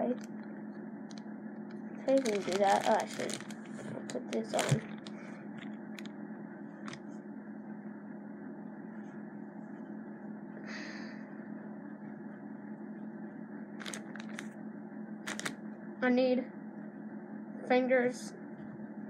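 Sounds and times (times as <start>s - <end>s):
low room hum: 0.0s - 19.0s
plastic bag rustle: 2.0s - 6.1s, 13.8s - 14.5s, 15.2s - 15.6s.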